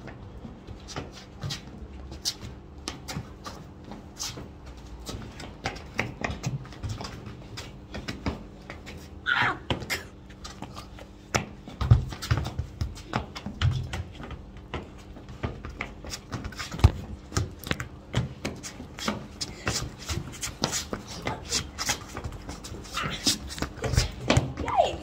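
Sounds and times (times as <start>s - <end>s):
trainers tapping on hard ground: 5.0s - 9.9s, 11.3s - 25.0s.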